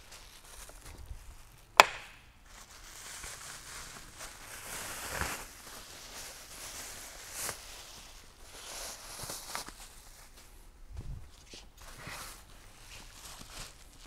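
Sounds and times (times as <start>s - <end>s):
plastic packaging crinkling: 2.4s - 10.4s, 12.3s - 14.0s.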